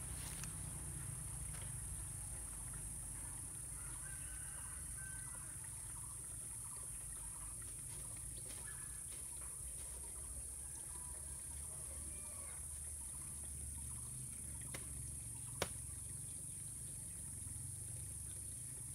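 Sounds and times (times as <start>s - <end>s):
bird calls: 6.7s - 14.1s
insect drone: 10.1s - 18.9s.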